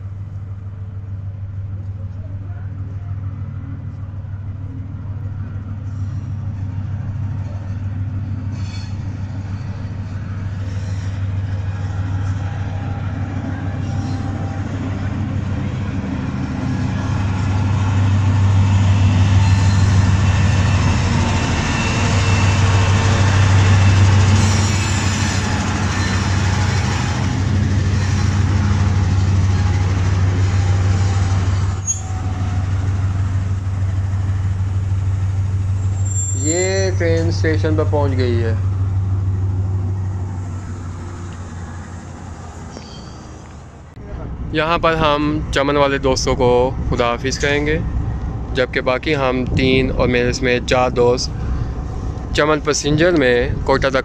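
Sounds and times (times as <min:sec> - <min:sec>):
diesel locomotive engine drone: 0:00.0 - 0:54.0
train coaches rolling past: 0:00.0 - 0:54.0
faint high wheel squeal: 0:08.5 - 0:13.0, 0:19.2 - 0:22.9, 0:23.6 - 0:26.8, 0:31.0 - 0:32.4, 0:35.8 - 0:37.4, 0:42.6 - 0:43.5.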